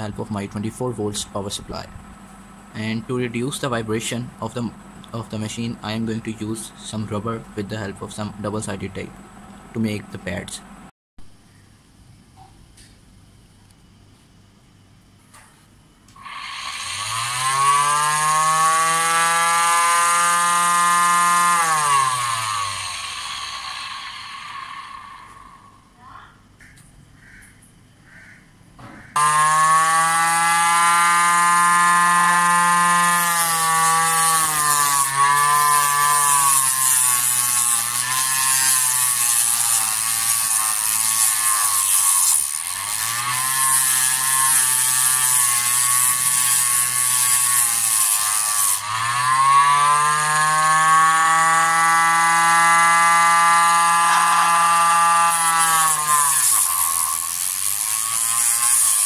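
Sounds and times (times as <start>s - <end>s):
disc sander motor whine: 21.5s - 25.7s, 52.4s - 58.7s
wood sanded against disc: 29.2s - 59.0s.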